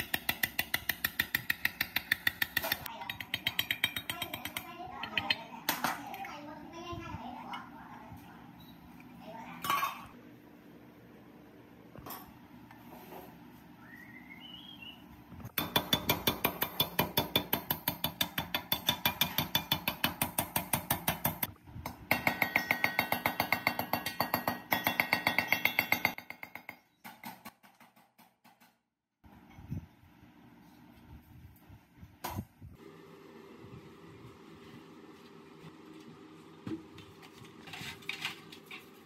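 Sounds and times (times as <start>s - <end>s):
hammer tapping on metal: 0.0s - 5.4s, 15.6s - 21.5s, 22.1s - 27.2s.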